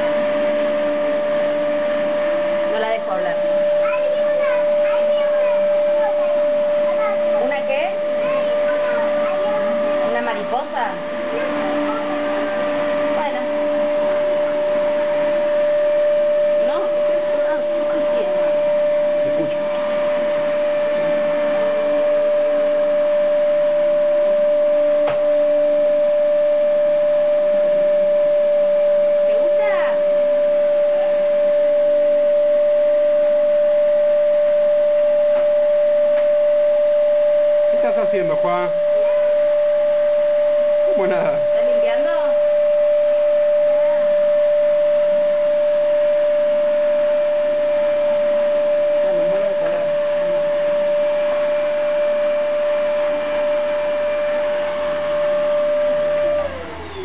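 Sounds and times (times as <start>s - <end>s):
vacuum cleaner running: 0.0s - 57.0s.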